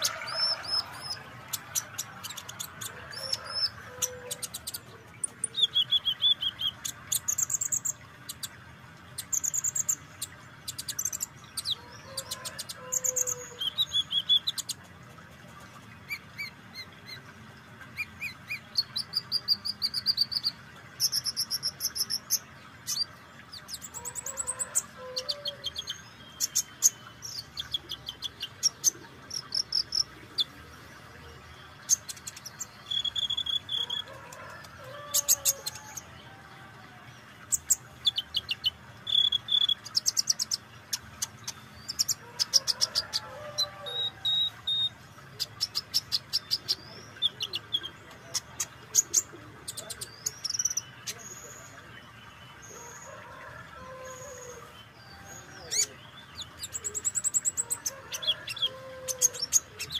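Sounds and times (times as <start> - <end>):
other birds calling: 0.0 - 59.9
sunbird high-pitched trills: 31.9 - 34.1.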